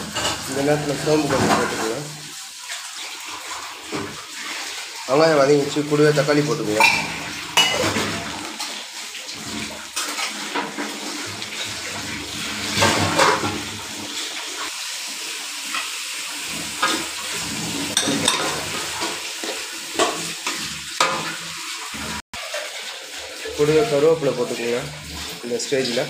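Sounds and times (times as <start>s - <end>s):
vegetables frying in oil: 0.0s - 26.0s
spatula scraping and knocking pan: 12.6s - 13.7s.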